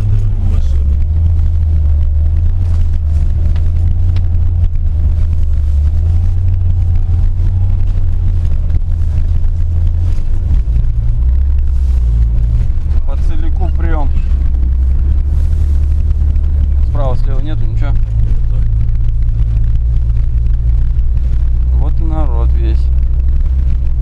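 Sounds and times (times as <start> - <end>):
car engine and tyres droning: 0.0 - 24.0.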